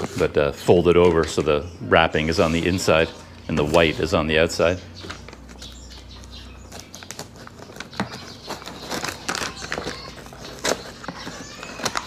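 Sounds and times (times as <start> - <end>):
paper crinkling and rustling: 5.0 - 12.0.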